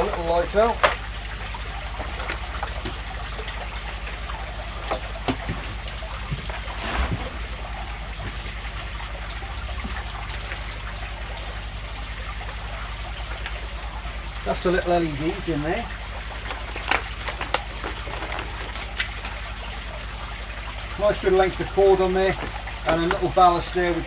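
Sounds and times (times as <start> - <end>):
water trickling from filter: 0.0 - 24.0
plastic packaging clicks: 16.4 - 19.4.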